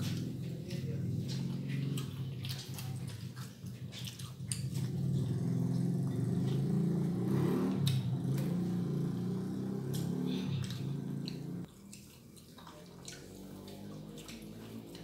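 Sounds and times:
steady low hum: 0.0 - 11.9
people eating and chewing: 0.0 - 15.0.

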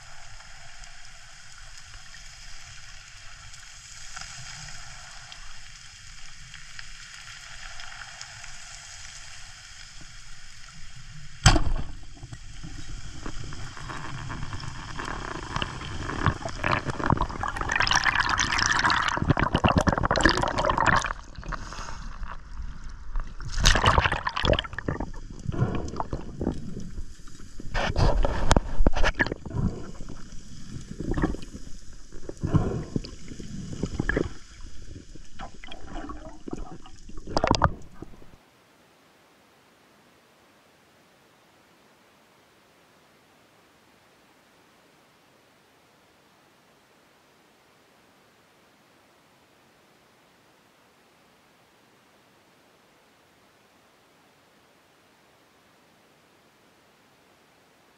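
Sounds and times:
underwater rushing and bubbling: 0.0 - 38.4
speargun firing crack: 11.4 - 11.9.

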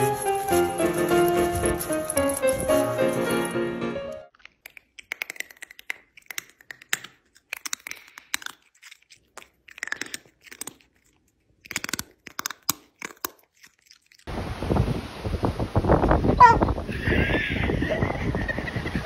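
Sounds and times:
cat chewing crunchy food: 4.3 - 14.3.

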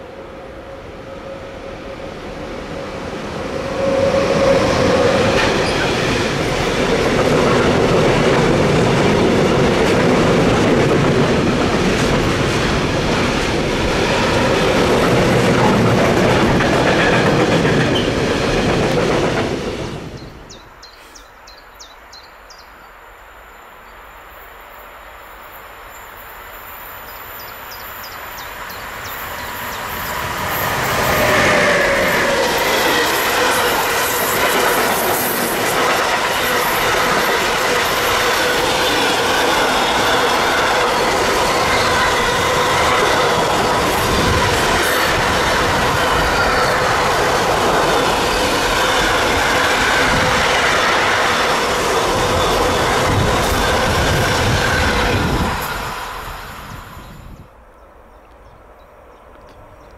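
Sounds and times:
approaching train: 0.0 - 59.9
train wheels clacking over rails: 3.5 - 20.2, 28.4 - 56.9.

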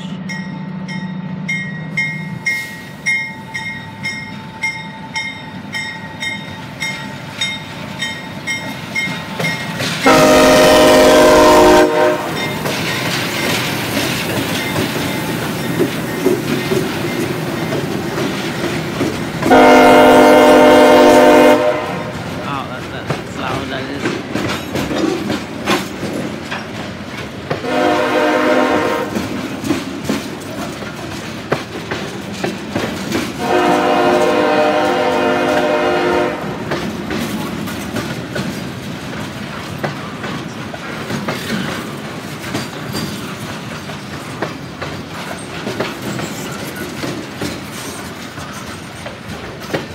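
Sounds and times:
freight train rumbling past: 0.0 - 49.9
wheels clicking over rail joints: 3.6 - 10.7, 11.3 - 20.2, 22.2 - 27.8, 28.6 - 35.7, 36.5 - 49.9
locomotive horn blasts: 10.0 - 12.5, 19.5 - 22.2, 27.6 - 29.2, 33.4 - 36.6.

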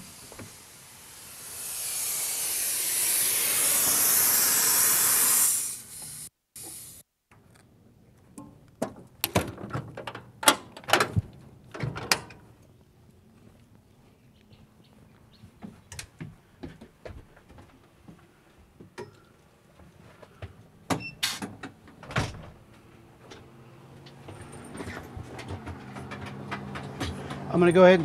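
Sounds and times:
compressed air hissing: 0.0 - 7.1
sharp clicks and knocks: 23.2 - 27.5.

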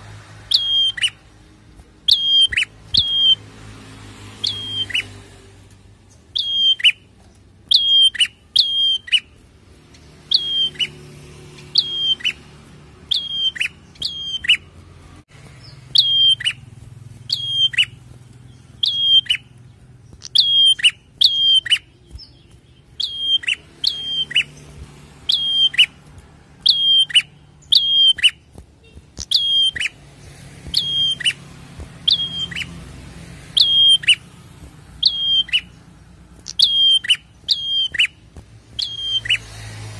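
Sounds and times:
bird calling sharp high notes: 0.5 - 1.3, 2.0 - 3.4, 4.4 - 5.2, 6.3 - 7.1, 7.7 - 9.4, 10.2 - 14.8, 15.6 - 18.1, 18.7 - 24.6, 25.2 - 26.0, 26.6 - 30.0, 30.7 - 31.4, 32.0 - 32.8, 33.5 - 34.3, 35.0 - 35.8, 36.4 - 38.2, 38.8 - 39.5.

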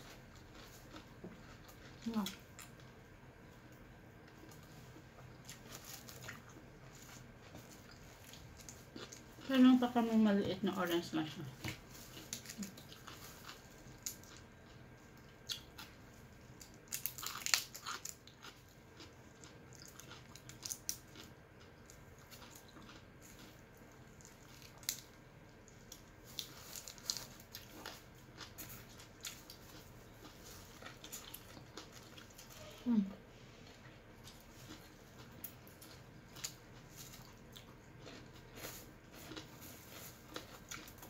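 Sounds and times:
crunching and chewing: 0.0 - 10.1, 11.4 - 41.0.

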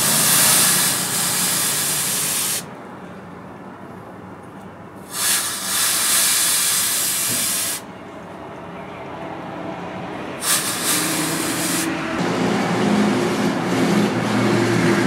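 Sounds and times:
hot blade hissing in water: 0.0 - 2.7, 5.1 - 7.8, 10.4 - 11.9.

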